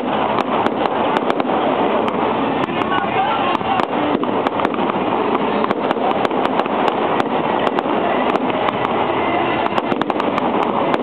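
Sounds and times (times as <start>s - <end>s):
fireworks crackling hiss: 0.0s - 11.0s
fireworks pops and bangs: 0.0s - 11.0s.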